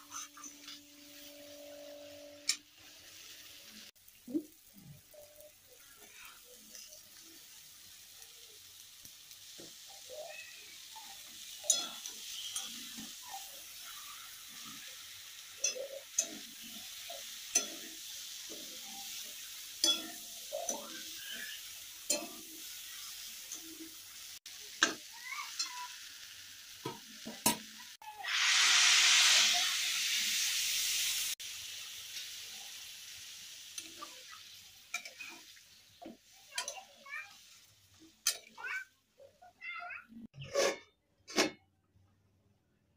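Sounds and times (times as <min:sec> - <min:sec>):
steady sizzle: 0:00.0 - 0:40.4
loud hiss: 0:28.1 - 0:31.4.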